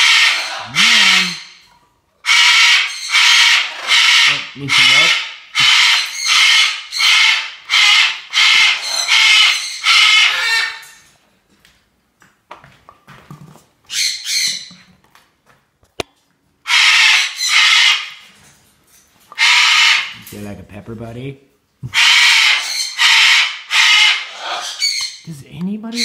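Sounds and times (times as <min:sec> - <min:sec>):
parrot screaming: 0:00.0 - 0:11.0, 0:13.9 - 0:14.7, 0:16.6 - 0:18.4, 0:19.3 - 0:20.2, 0:21.9 - 0:25.3.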